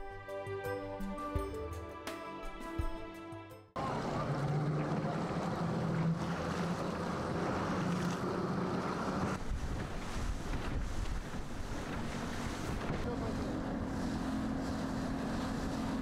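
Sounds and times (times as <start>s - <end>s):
boat engine hum: 3.8s - 16.0s
rushing water: 3.8s - 16.0s
wind buffeting the microphone: 9.0s - 16.0s.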